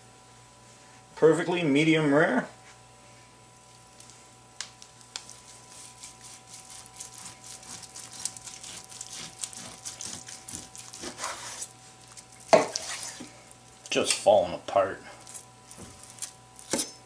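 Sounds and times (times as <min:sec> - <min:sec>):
knife slicing crusty roast: 0:05.2 - 0:14.2, 0:15.2 - 0:17.0.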